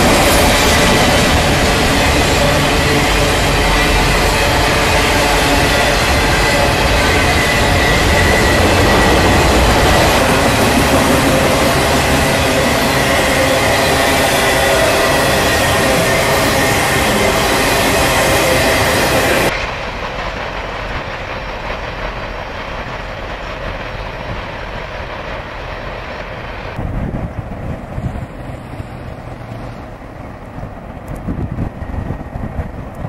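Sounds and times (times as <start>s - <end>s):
steel wheels on rail ringing: 0.0s - 26.0s
freight train rolling past: 0.0s - 33.0s.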